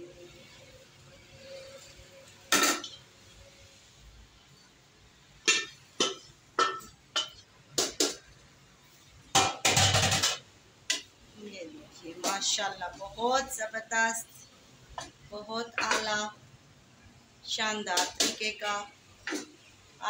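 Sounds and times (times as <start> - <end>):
metal pot clinking and knocking: 5.5 - 8.2, 9.4 - 11.1.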